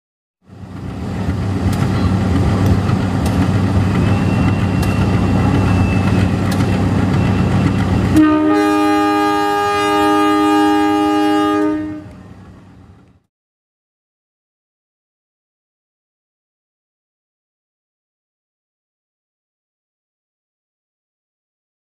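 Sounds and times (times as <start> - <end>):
locomotive engine and wheels droning: 0.4 - 13.3
locomotive horn: 8.0 - 12.4.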